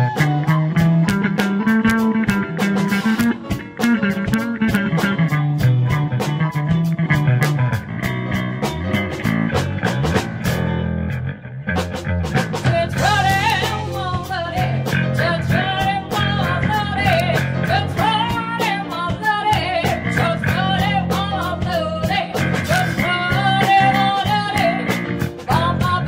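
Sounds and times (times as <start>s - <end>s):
blues-rock band playing: 0.0s - 26.0s
woman singing into microphone: 12.6s - 26.0s.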